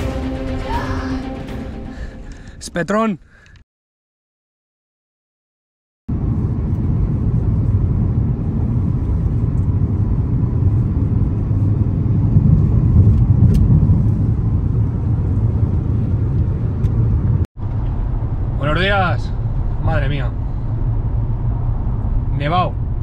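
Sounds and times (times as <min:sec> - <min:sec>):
road and engine rumble in car: 0:06.1 - 0:23.0.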